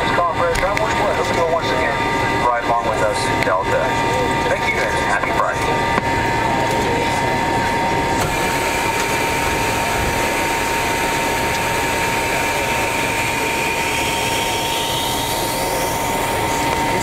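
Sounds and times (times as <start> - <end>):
high engine whine: 0.0 - 17.0
jet engines idling drone: 0.0 - 17.0.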